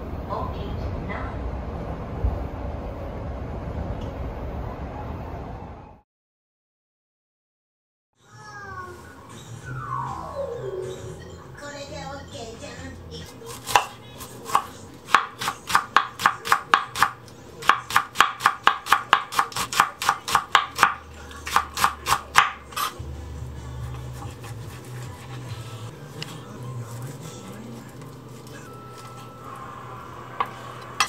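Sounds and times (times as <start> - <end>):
knife chopping on wooden board: 13.5 - 22.9.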